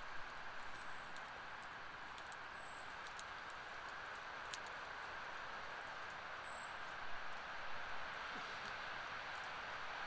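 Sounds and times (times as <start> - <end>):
campfire crackling: 0.0 - 9.9.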